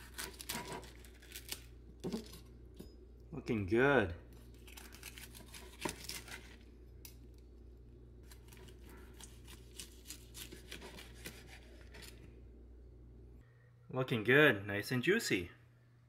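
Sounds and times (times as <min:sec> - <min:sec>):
knife sawing through meat: 0:08.6 - 0:12.1.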